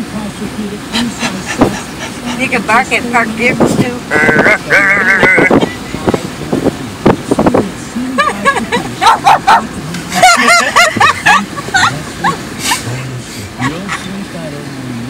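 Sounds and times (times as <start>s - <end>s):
woman barking like a dog: 9.0s - 10.9s.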